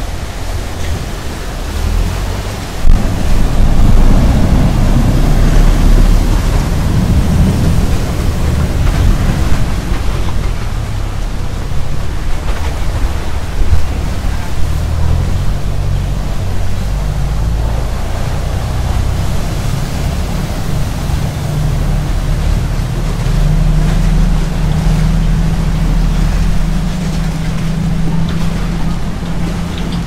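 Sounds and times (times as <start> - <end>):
boat engine droning: 0.0 - 30.0
propeller wash churning water: 0.0 - 30.0.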